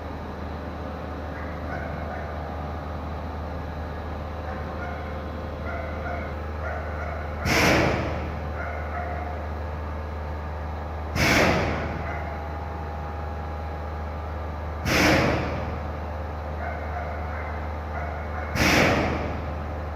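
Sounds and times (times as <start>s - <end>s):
vacuum forming machine hum: 0.0s - 19.9s
short loud burst of hiss: 7.4s - 8.2s, 11.2s - 12.0s, 14.8s - 15.7s, 18.6s - 19.4s.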